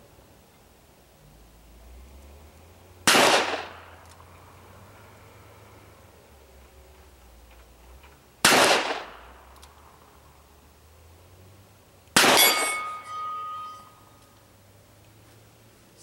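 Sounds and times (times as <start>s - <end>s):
revolver shots: 12.2s - 13.8s
steel plate target ringing: 12.2s - 14.2s.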